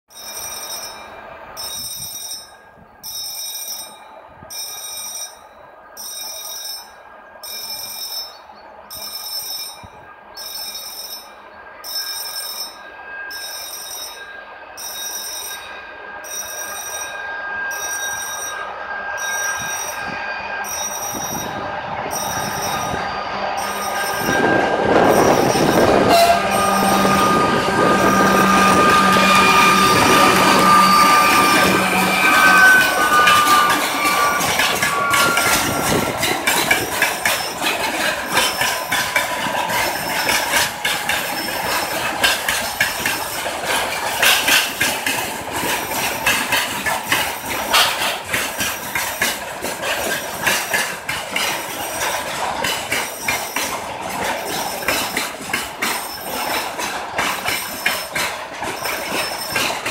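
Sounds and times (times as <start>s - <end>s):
diesel locomotive rumble: 0.2s - 59.9s
level crossing warning pulses: 11.8s - 44.0s.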